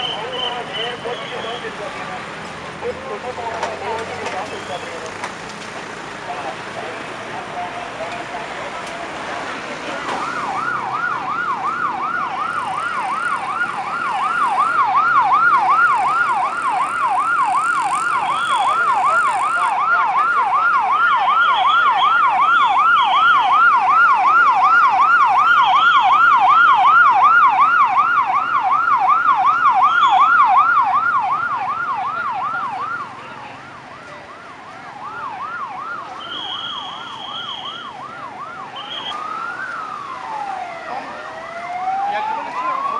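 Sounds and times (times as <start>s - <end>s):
faint wailing siren: 6.5s - 42.9s
ambulance siren yelping: 7.4s - 42.9s.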